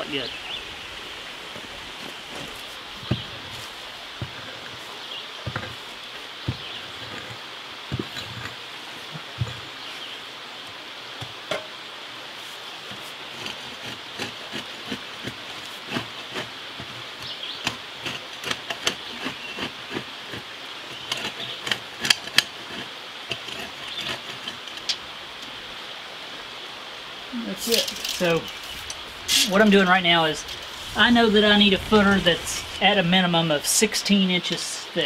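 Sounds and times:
pick and shovel digging stones: 17.2s - 24.8s, 27.6s - 33.0s.

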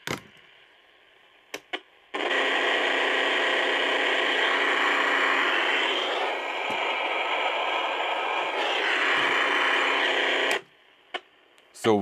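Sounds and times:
radio static: 2.2s - 11.2s.

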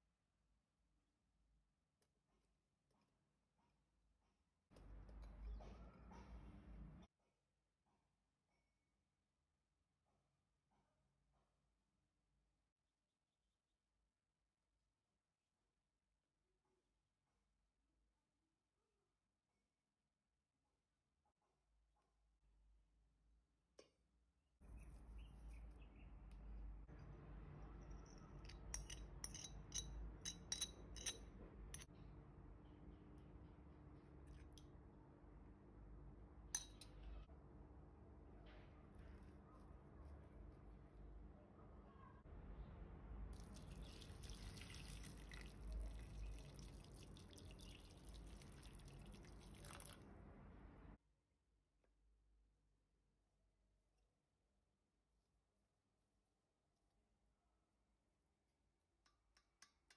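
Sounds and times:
teaspoon clinking on ceramic dish: 27.9s - 31.9s
water pouring into a metal pot: 43.4s - 50.1s.

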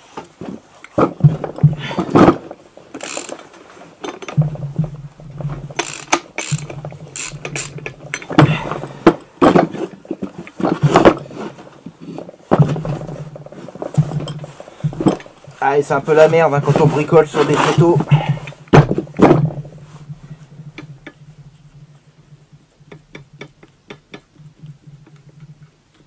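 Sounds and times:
ratchet wrench clicking: 3.0s - 3.4s, 5.8s - 7.8s.

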